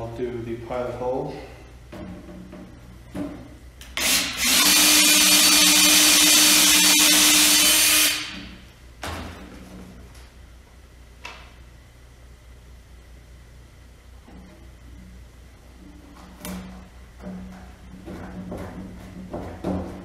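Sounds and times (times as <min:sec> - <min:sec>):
cordless drill drilling: 0:04.0 - 0:08.4.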